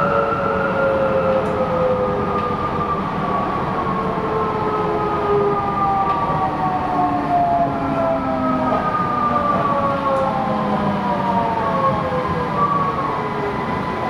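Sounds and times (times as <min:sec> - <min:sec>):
train wheels rolling on track: 0:00.0 - 0:14.0.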